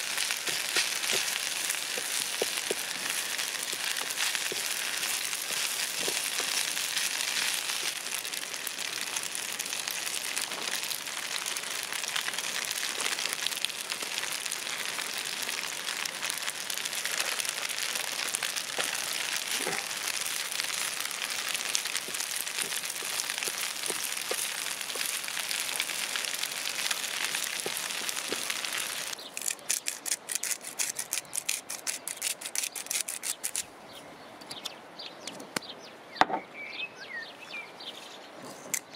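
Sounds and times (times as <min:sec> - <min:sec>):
wooden spoon stirring: 0:00.0 - 0:09.2, 0:17.0 - 0:29.2
food sizzling in a pan: 0:00.0 - 0:29.2.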